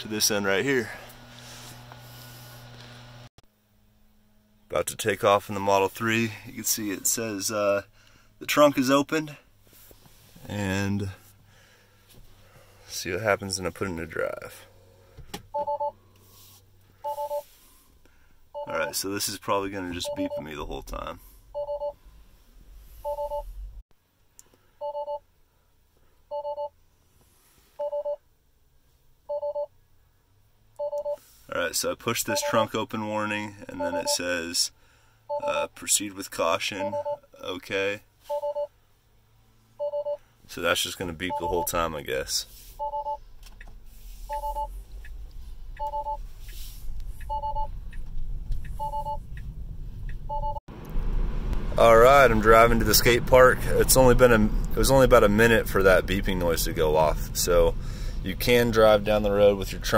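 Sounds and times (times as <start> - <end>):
car warning chime beeping: 15.5 - 16.0, 17.0 - 17.5, 19.8 - 20.7, 21.5 - 22.0, 23.0 - 23.5, 24.8 - 25.2, 26.3 - 26.8, 27.8 - 28.2, 29.3 - 29.7, 30.8 - 31.2, 32.3 - 32.7, 33.7 - 34.3, 35.3 - 35.7, 36.8 - 37.3, 38.3 - 38.7, 39.8 - 40.2, 41.2 - 41.9, 42.8 - 49.5, 50.1 - 50.6
car warning chime triple beep: 15.5 - 16.0, 17.0 - 17.5, 20.0 - 20.6, 21.5 - 22.0, 23.0 - 23.5, 32.3 - 32.7, 33.8 - 34.3, 36.8 - 37.2, 38.3 - 38.7, 41.3 - 41.8, 44.3 - 45.2, 45.8 - 46.2, 47.2 - 47.8, 48.6 - 49.4, 50.2 - 50.6
car rolling rumble: 40.5 - 59.9.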